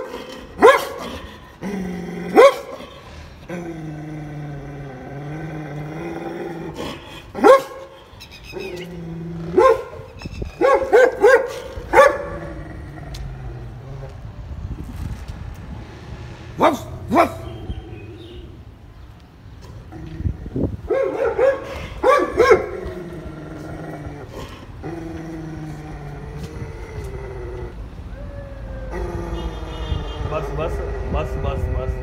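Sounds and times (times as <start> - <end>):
dog barking: 0.0 - 1.2, 2.3 - 2.8, 7.4 - 8.0, 9.6 - 12.4, 16.6 - 17.6, 20.9 - 22.8
dog growling: 0.0 - 7.5, 8.5 - 10.0, 12.2 - 14.2, 19.9 - 20.7, 21.7 - 27.8, 28.7 - 32.0.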